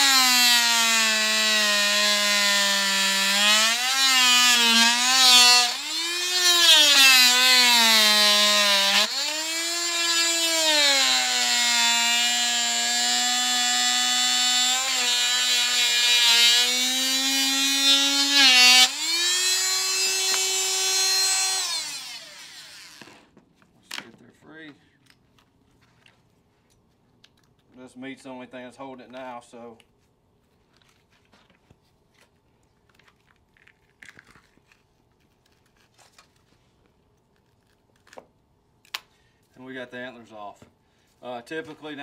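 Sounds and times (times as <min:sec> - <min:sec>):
electric saw cutting bone: 0:00.0 - 0:23.3.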